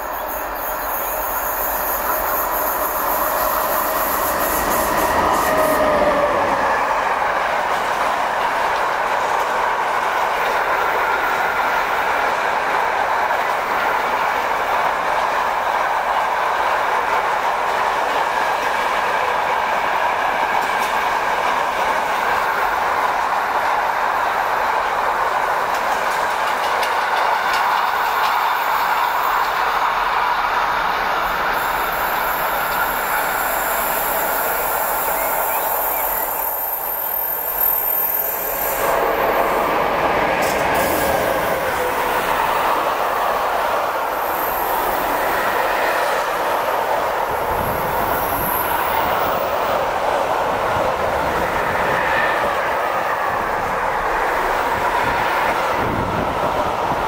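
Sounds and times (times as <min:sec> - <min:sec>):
train wheels rumbling on rails: 0:00.0 - 0:57.0
high wheel squealing: 0:31.6 - 0:39.6.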